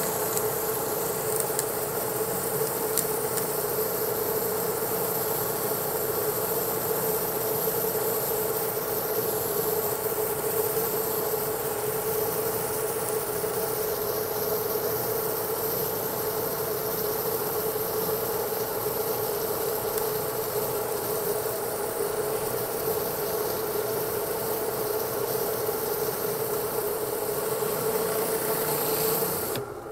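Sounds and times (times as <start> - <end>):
spraying water hiss: 0.0 - 29.6
pressure washer hum: 25.8 - 29.9.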